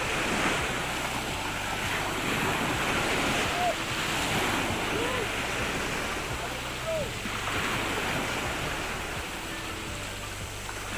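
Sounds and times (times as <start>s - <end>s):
wind buffeting microphone: 0.0s - 10.6s
ocean surf breaking: 0.0s - 10.9s.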